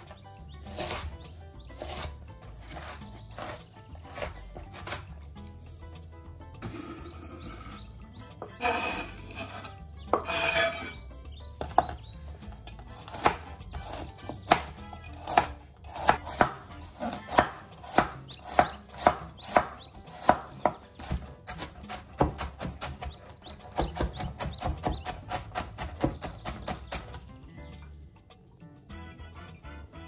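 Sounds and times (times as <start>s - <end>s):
knife chopping on cutting board: 0.7s - 1.1s, 1.8s - 5.1s, 13.0s - 27.2s.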